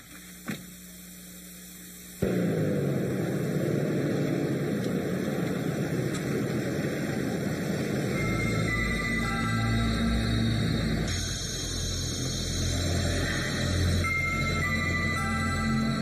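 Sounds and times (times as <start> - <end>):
faint hum: 0.0 - 16.0
loud steady rumbling: 1.0 - 16.0
dramatic music: 7.6 - 16.0.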